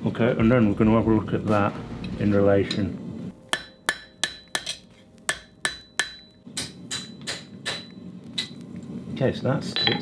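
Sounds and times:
hammer striking steel bar: 3.5s - 8.6s.

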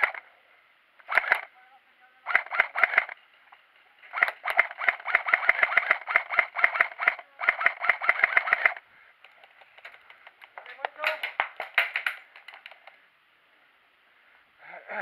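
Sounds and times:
airsoft rifle firing full auto: 1.0s - 1.5s, 2.2s - 3.2s, 4.1s - 8.8s.

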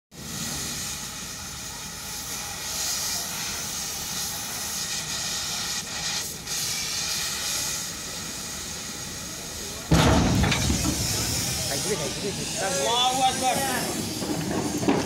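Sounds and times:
compressed air hissing: 0.2s - 15.0s.

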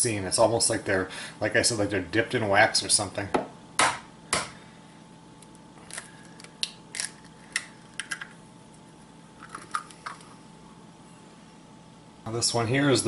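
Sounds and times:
eggshell cracking: 5.8s - 8.4s, 9.4s - 10.4s.

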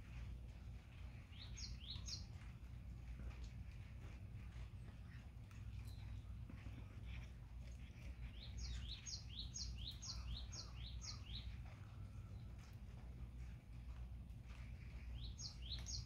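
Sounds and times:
low steady hum: 0.0s - 16.0s
small bird chirping: 0.9s - 2.6s, 4.5s - 12.8s, 14.6s - 16.0s.

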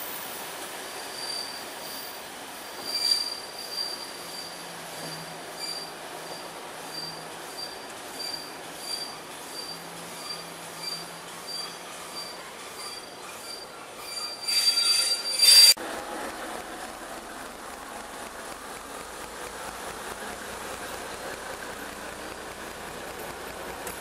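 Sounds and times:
train wheels screeching: 0.0s - 15.8s.

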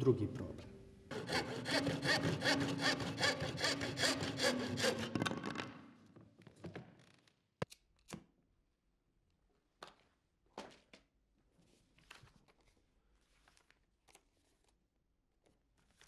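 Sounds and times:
saw rasping through wood: 1.1s - 5.4s.

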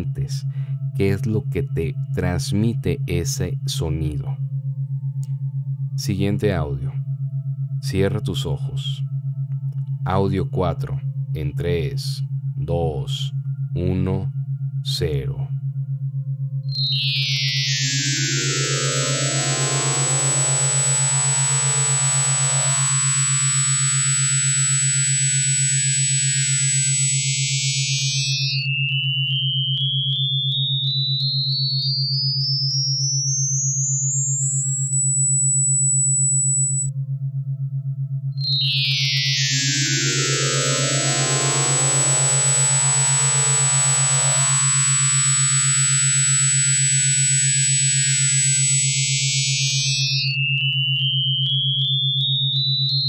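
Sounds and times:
low buzzing pulsing tone: 0.0s - 53.0s
rising synth sweeps: 16.7s - 28.8s, 38.4s - 50.4s
cluster of high electronic tones: 16.7s - 36.9s, 38.4s - 53.0s.

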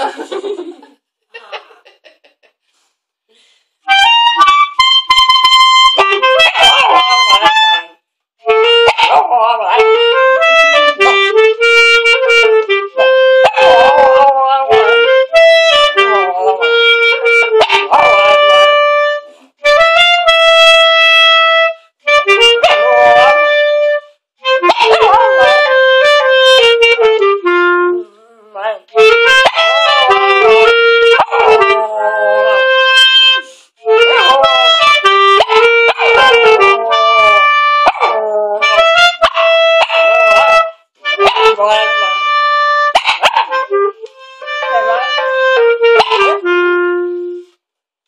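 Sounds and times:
clarinet held notes: 3.9s - 28.2s, 28.9s - 47.6s
puppy howling: 8.9s - 10.2s, 13.0s - 18.7s, 22.4s - 23.6s, 24.7s - 26.3s, 28.1s - 42.4s, 44.6s - 46.4s.

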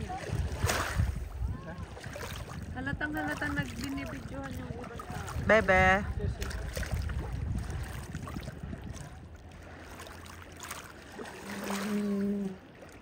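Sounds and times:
water lapping and sloshing: 0.0s - 13.0s
person humming: 11.6s - 12.6s.

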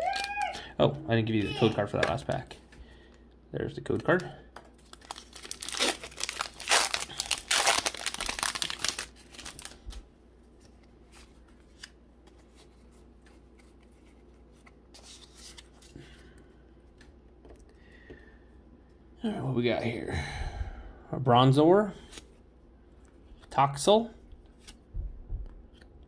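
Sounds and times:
foil wrapper crinkling: 4.8s - 10.0s.

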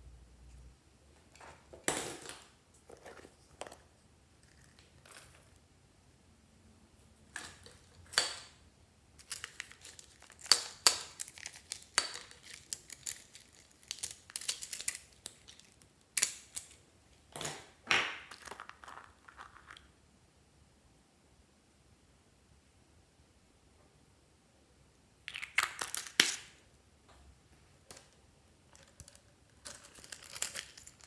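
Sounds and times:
plastic containers clicking and rustling: 27.9s - 31.0s.

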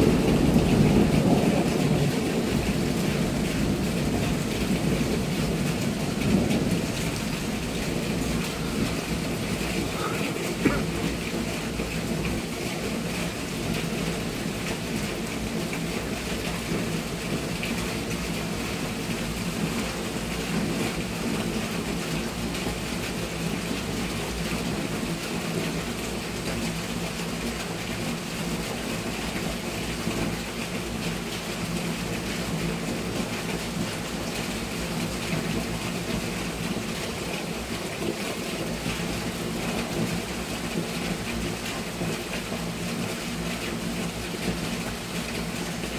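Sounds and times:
low thunder rumble: 0.0s - 5.6s
rain hissing: 0.0s - 17.6s, 18.4s - 45.9s.

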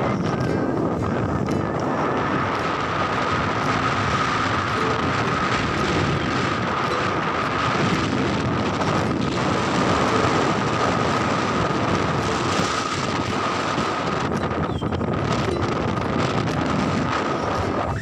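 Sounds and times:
wind buffeting microphone: 0.0s - 18.0s
thin steady high tone: 0.1s - 8.1s.

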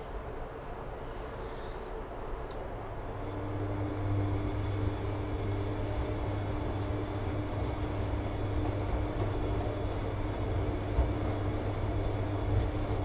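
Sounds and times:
low motor hum: 2.9s - 13.0s
washing machine tumbling load: 3.2s - 13.0s.

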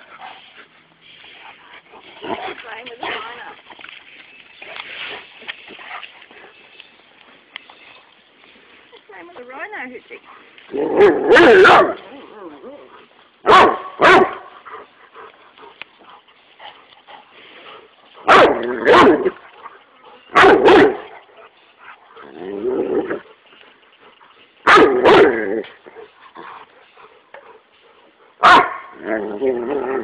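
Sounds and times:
dog barking: 11.0s - 12.0s, 13.4s - 14.5s, 18.2s - 19.4s, 20.3s - 21.1s, 24.6s - 25.3s, 28.4s - 28.9s.

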